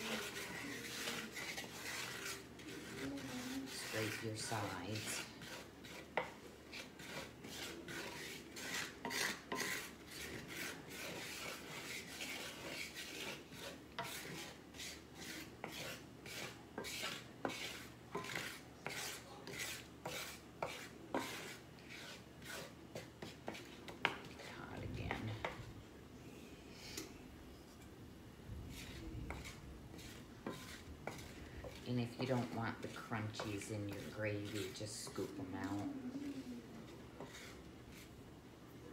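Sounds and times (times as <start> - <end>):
wooden spatula scraping skillet: 0.0 - 25.8, 28.6 - 38.2
spatula tapping pan: 5.4 - 14.5, 15.2 - 24.4, 28.7 - 31.8.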